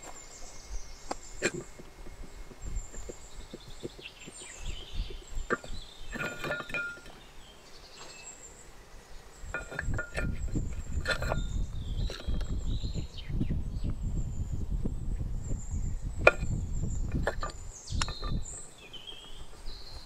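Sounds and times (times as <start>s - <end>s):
birds chirping: 0.0s - 20.0s
clay bowls clinking: 1.3s - 2.2s, 2.9s - 7.3s, 9.5s - 12.6s, 16.2s - 18.7s.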